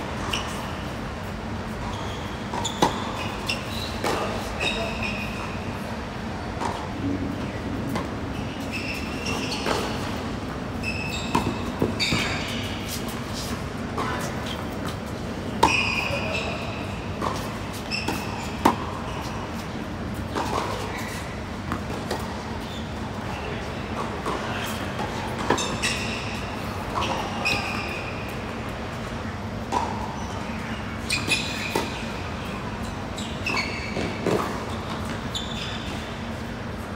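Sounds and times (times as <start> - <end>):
low background noise: 0.0 - 36.9
shoes squeaking on court: 0.0 - 36.9
tennis ball bouncing: 2.5 - 4.5, 17.2 - 19.0, 20.4 - 22.4, 33.5 - 35.2.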